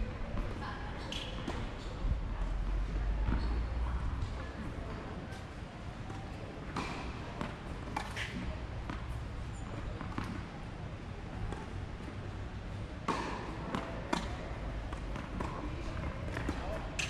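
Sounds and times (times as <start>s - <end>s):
tennis balls bouncing and struck: 3.1s - 3.6s, 6.0s - 10.6s, 13.0s - 17.0s.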